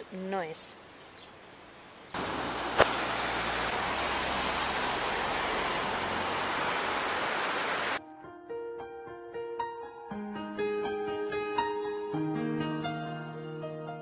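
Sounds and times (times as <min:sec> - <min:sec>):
river water rushing over rocks: 0:02.2 - 0:08.0.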